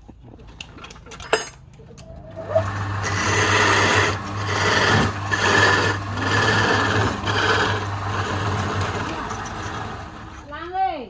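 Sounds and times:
lathe motor hum: 0:02.2 - 0:10.4
chisel scraping wood: 0:03.0 - 0:10.4.

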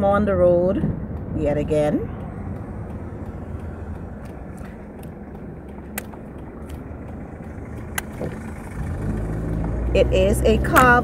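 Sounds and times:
car driving hum inside cabin: 0:00.0 - 0:11.0
sharp clicks: 0:02.5 - 0:09.7.

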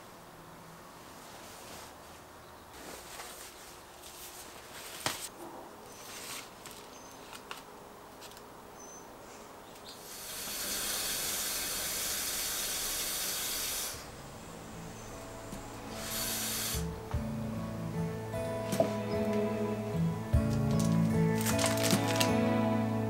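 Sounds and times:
plastic wrapping rustling: 0:01.2 - 0:08.5, 0:20.4 - 0:22.6
water running from faucet: 0:10.1 - 0:14.0.

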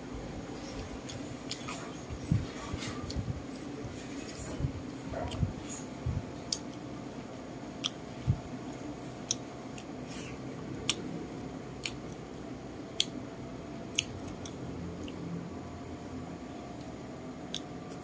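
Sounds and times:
mouth chewing: 0:05.1 - 0:05.9, 0:09.1 - 0:11.1, 0:13.9 - 0:15.2.

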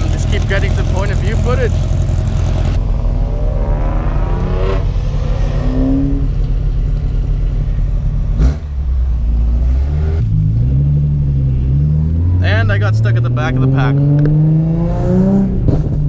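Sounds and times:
car engine and exhaust drone: 0:00.0 - 0:16.0
exhaust pop: 0:15.4 - 0:16.0.

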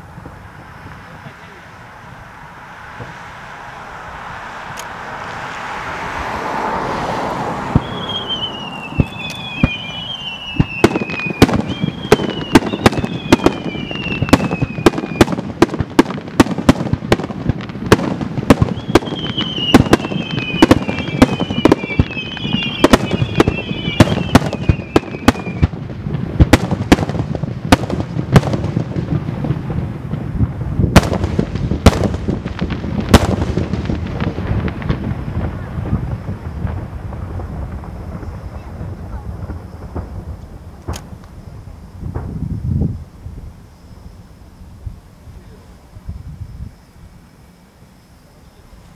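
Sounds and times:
fireworks bangs: 0:00.0 - 0:44.2
whistling firework shells: 0:07.6 - 0:25.8, 0:26.4 - 0:44.4.

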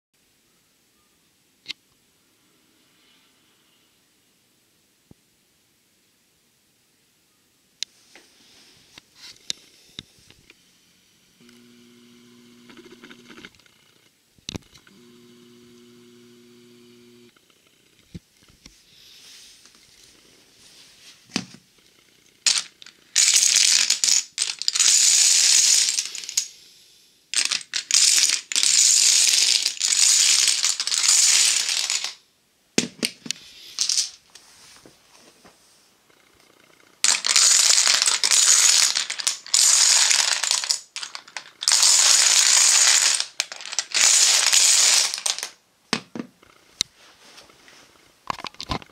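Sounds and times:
dominoes clattering down: 0:22.4 - 0:26.6, 0:27.3 - 0:32.2, 0:32.8 - 0:34.2, 0:37.0 - 0:45.6.

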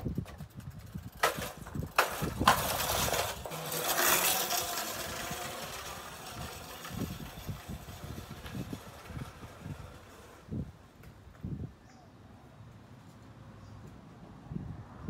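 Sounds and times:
electric scooter rolling past: 0:00.3 - 0:11.1.

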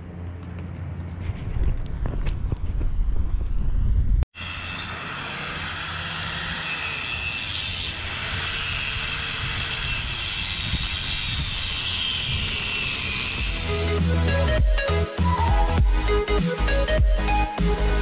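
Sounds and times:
wind rumble on microphone: 0:00.8 - 0:04.3, 0:09.0 - 0:13.5
angle grinder grinding steel: 0:04.4 - 0:14.6.

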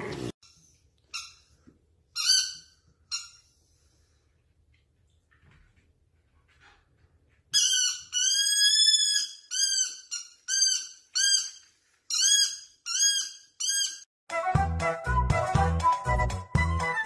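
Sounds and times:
rubber toy squeaking: 0:02.2 - 0:03.4, 0:07.6 - 0:14.1.

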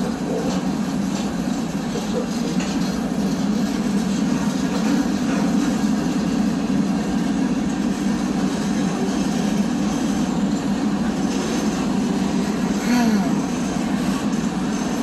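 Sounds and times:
train wheels rumbling on rails: 0:00.0 - 0:15.0.

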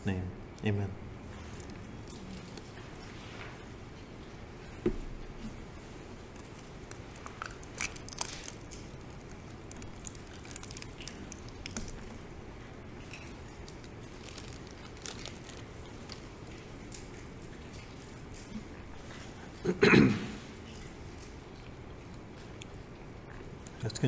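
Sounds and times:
low room hum: 0:00.0 - 0:24.0
plastic packaging crinkling: 0:01.4 - 0:03.1, 0:06.3 - 0:12.3, 0:13.0 - 0:18.3.

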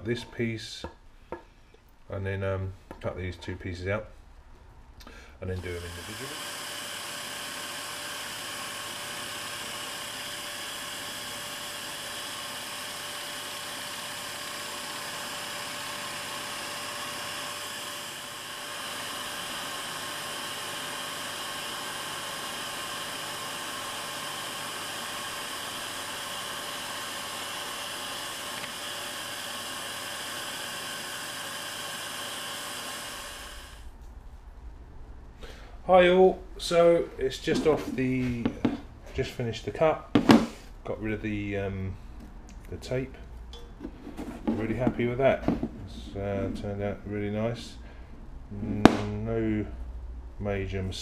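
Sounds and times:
scroll saw cutting wood: 0:05.6 - 0:33.9.

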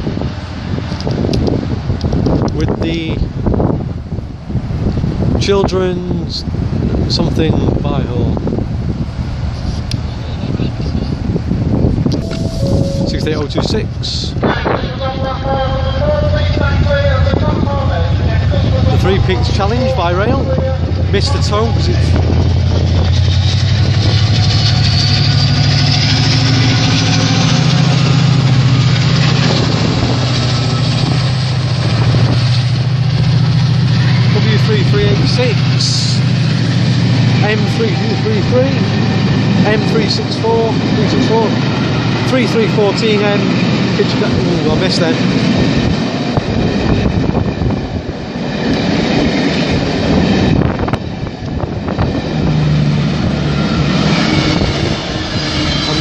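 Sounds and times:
diesel locomotive engine drone: 0:00.0 - 0:56.0
faint high whine: 0:12.2 - 0:13.7
train wheels rolling: 0:15.7 - 0:56.0.

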